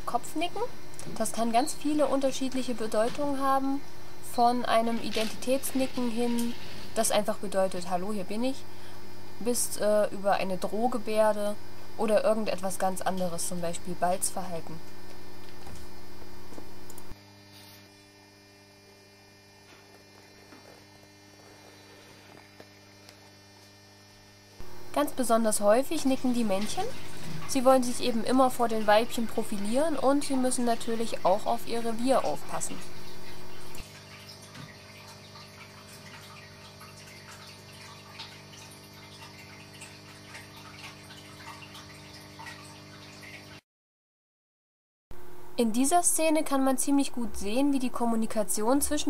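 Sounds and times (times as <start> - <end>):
faint mains hum: 0.0 - 43.6, 45.2 - 49.0
low hum: 24.6 - 33.8
water trickling and dripping: 28.5 - 43.6.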